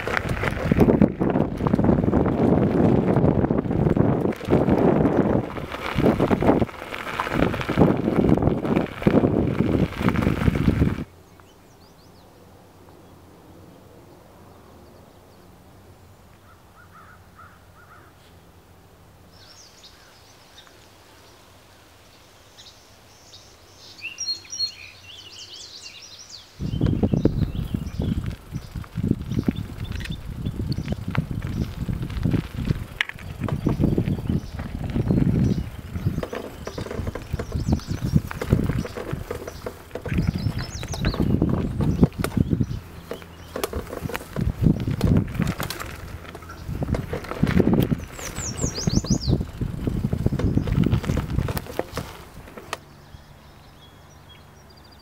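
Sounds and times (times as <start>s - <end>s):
wind buffeting microphone: 0.0s - 11.2s, 26.6s - 53.8s
bicycle riding on gravel: 0.0s - 12.1s, 23.3s - 54.5s
songbirds chirping: 0.0s - 55.0s.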